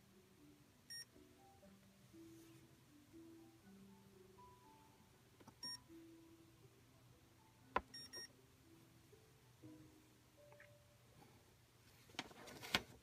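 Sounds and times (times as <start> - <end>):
faint melodic music: 0.0 - 13.0
chess computer beeps: 7.9 - 8.3.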